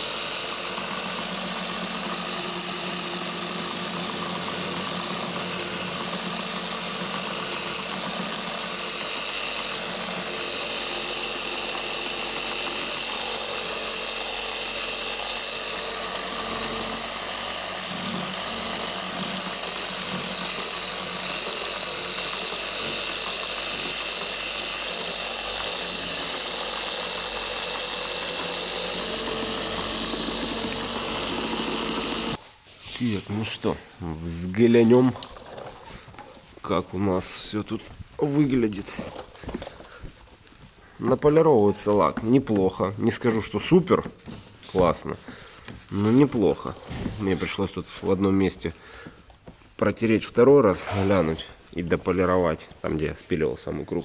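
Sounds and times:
polisher motor whine: 0.0 - 32.4
polishing pad whirring on paint: 0.0 - 32.4.

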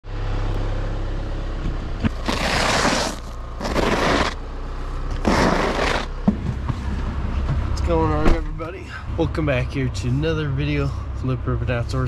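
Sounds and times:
engine idling: 0.1 - 12.0
brush sweeping snow: 2.2 - 4.4, 5.1 - 6.1.

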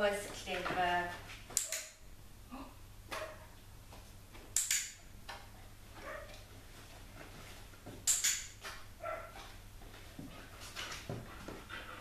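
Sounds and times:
sharp double clicks: 4.6 - 5.0, 8.1 - 8.5.

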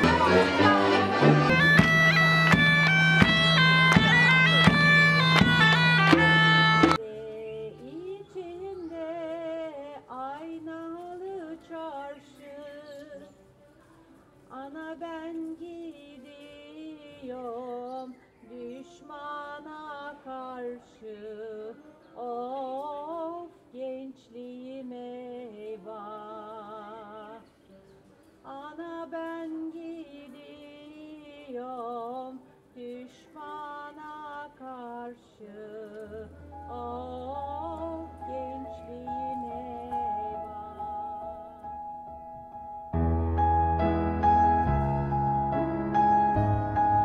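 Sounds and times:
woman singing with vibrato: 0.0 - 2.6, 6.0 - 13.3, 28.5 - 41.6.

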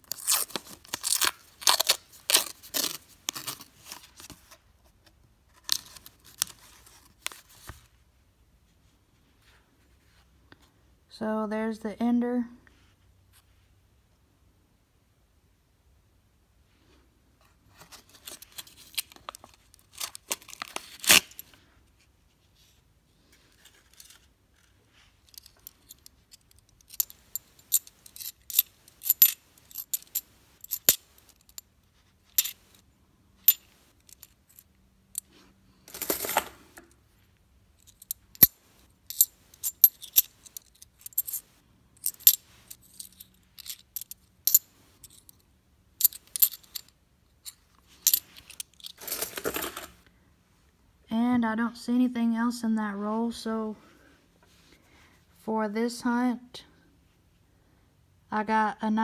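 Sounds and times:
coins clinking: 25.3 - 31.6, 32.4 - 32.6, 33.4 - 34.6, 35.9 - 36.6, 37.8 - 41.4, 42.0 - 45.4, 46.0 - 46.9, 48.0 - 50.0.

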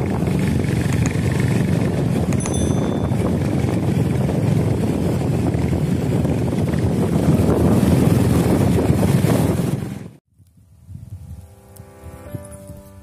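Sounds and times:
motorcycle engine running: 0.0 - 10.2
wind rushing over microphone: 0.0 - 13.0
brief high chime: 2.4 - 3.3.

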